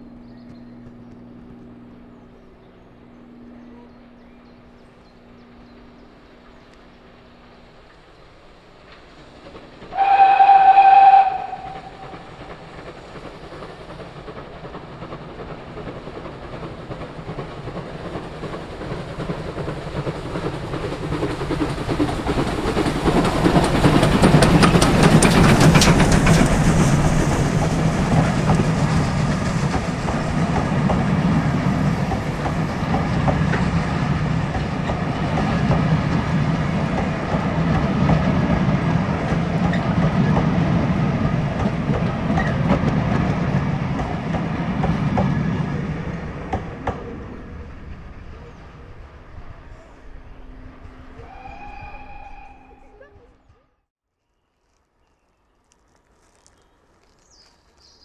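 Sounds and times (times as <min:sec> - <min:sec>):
train rumble: 0:00.0 - 0:53.8
wheels rolling on rails: 0:04.8 - 0:49.5
steam locomotive whistle: 0:09.9 - 0:12.3, 0:50.4 - 0:53.1.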